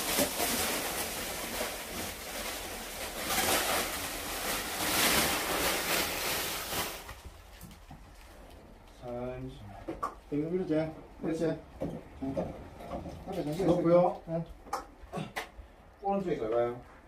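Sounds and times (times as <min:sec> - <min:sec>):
plastic film rustling and crinkling: 0:00.0 - 0:09.6.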